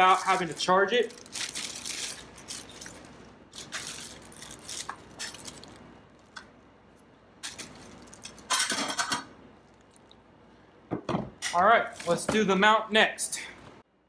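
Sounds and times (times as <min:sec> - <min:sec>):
plastic bag crinkling: 0:00.0 - 0:06.4, 0:07.4 - 0:08.5, 0:11.8 - 0:12.3.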